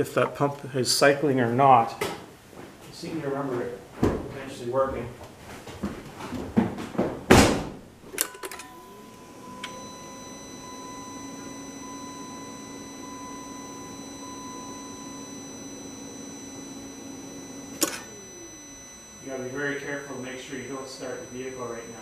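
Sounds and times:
electric fuel pump humming: 8.0s - 22.0s.

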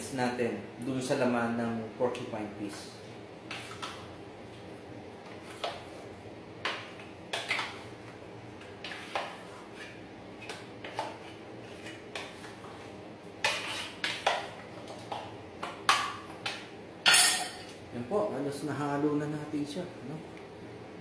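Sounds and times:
utensil scraping cooking pot: 8.6s - 14.8s.

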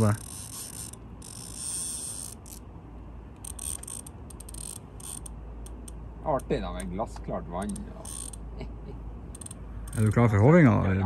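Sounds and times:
fishing reel ratchet clicking: 0.0s - 2.6s, 3.4s - 6.5s, 7.6s - 8.4s, 9.3s - 10.1s.

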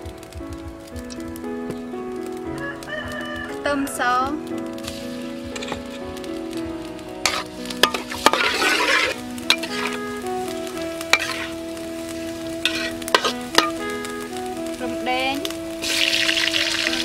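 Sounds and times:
garlic sizzling in hot oil: 0.0s - 17.0s
metal spatula scraping a wok: 5.6s - 6.0s, 7.2s - 14.0s, 15.8s - 17.0s.

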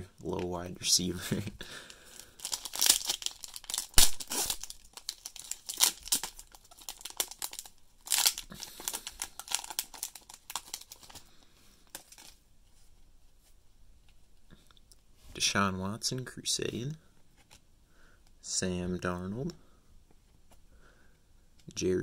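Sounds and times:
foil wrapper tearing and crinkling: 2.2s - 11.2s, 11.9s - 12.4s.

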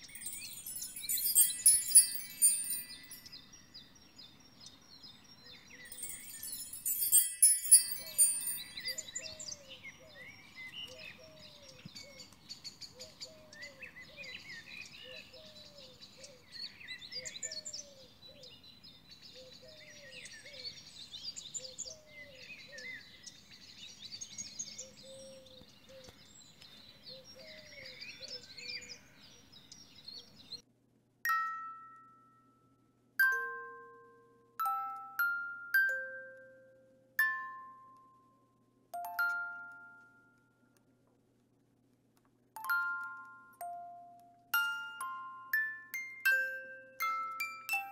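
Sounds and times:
glockenspiel-like mallet notes: 0.0s - 3.6s, 5.6s - 9.4s, 31.3s - 38.4s, 39.0s - 40.7s, 42.6s - 47.9s
bright sparkling chime: 0.0s - 3.8s, 5.6s - 9.6s, 31.3s - 32.6s, 33.2s - 38.0s, 39.0s - 40.5s, 42.6s - 47.9s
birds chirping and singing: 0.0s - 30.6s.

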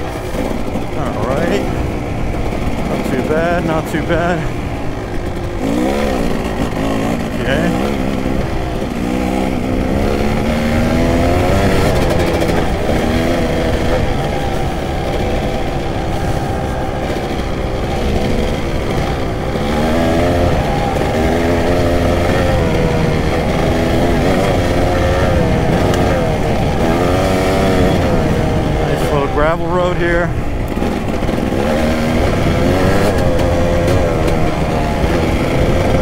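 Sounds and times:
dirt bike engine revving: 0.0s - 36.0s.

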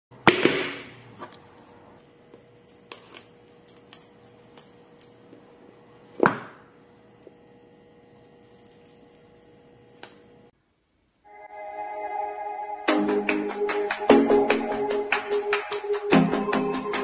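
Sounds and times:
protective film peeling: 2.0s - 6.2s, 8.2s - 10.3s.

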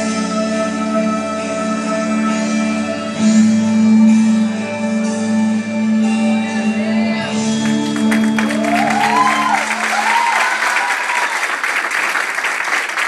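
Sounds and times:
music with long held notes: 0.0s - 10.6s
audience applause: 7.6s - 13.0s.

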